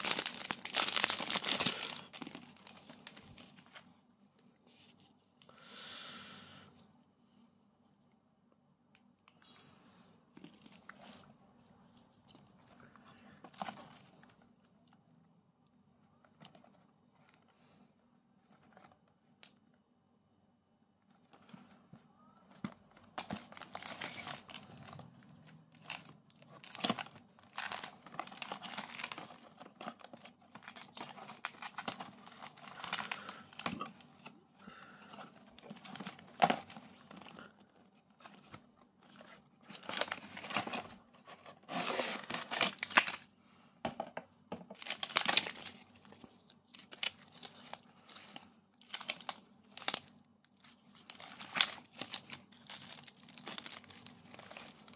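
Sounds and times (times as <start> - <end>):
foil packets crinkling: 0.0 - 3.8, 23.1 - 34.0, 41.7 - 43.3, 44.7 - 54.9.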